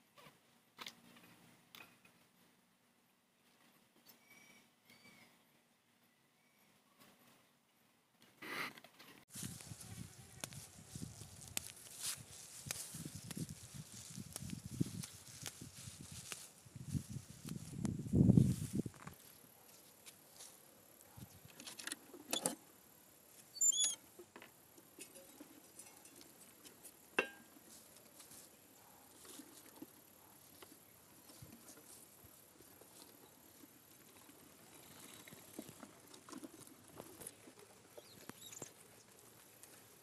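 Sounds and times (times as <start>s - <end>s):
short high squeak: 4.1s - 5.4s, 23.6s - 24.0s
animals scratching and pattering: 27.6s - 40.0s.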